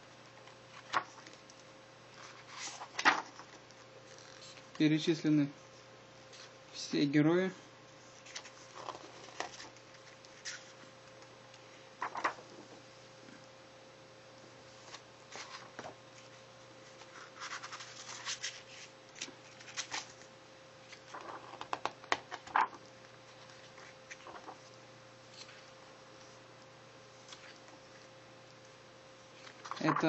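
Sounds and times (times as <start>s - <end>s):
faint steady hum: 0.0s - 30.0s
book pages turning: 0.5s - 4.8s, 8.2s - 10.9s, 12.0s - 12.8s, 14.8s - 24.8s, 27.2s - 28.1s, 29.3s - 30.0s.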